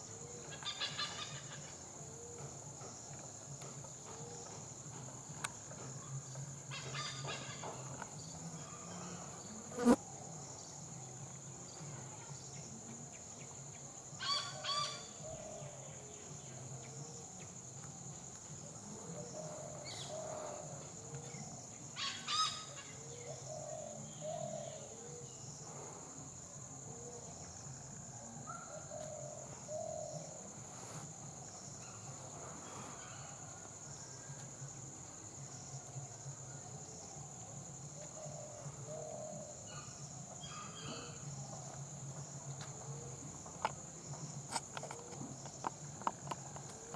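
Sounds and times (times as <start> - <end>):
high-pitched insect drone: 3.6 - 11.0.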